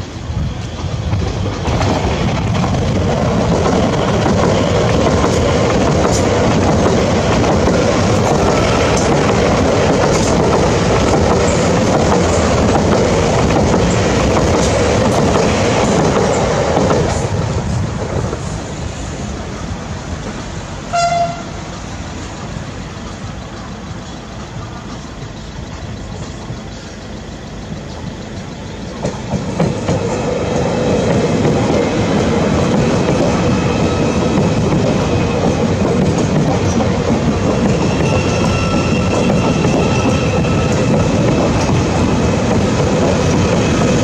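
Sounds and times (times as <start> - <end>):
electric trains passing: 0.0 - 44.0
train horn toot: 20.9 - 21.7, 37.6 - 41.2.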